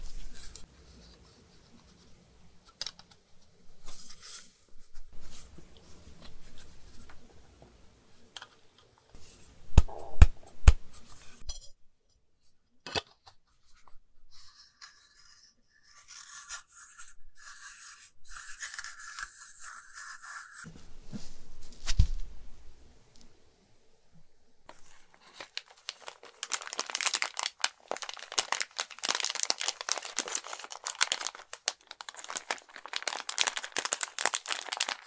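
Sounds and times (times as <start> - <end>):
plastic pieces clacking: 24.8 - 35.0.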